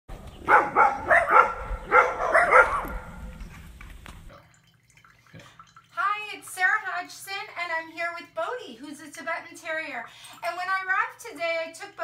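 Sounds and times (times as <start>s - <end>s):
small dog barking: 0.4s - 3.3s.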